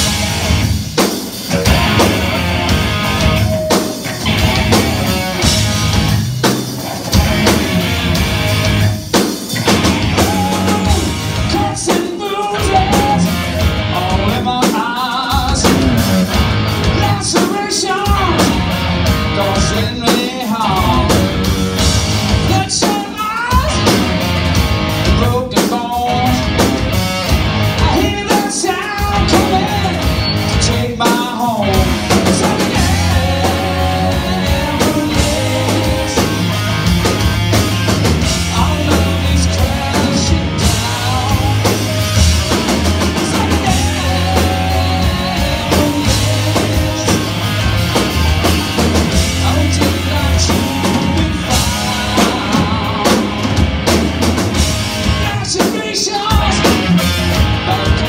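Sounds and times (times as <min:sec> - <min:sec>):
bass guitar: 0:00.0 - 0:58.0
drum kit: 0:00.0 - 0:58.0
electric guitar: 0:00.0 - 0:58.0.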